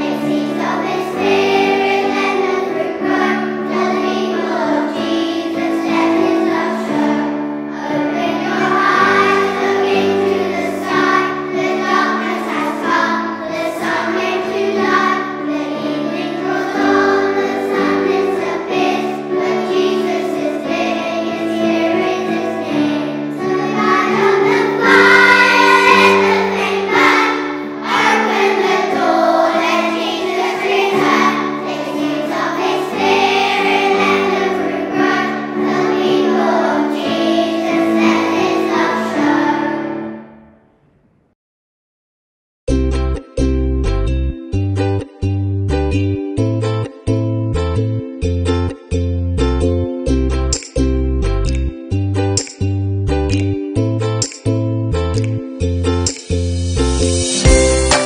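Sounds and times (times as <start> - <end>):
children singing: 0.0 - 40.3, 57.4 - 58.0
instrumental accompaniment: 0.0 - 40.4, 42.7 - 58.0.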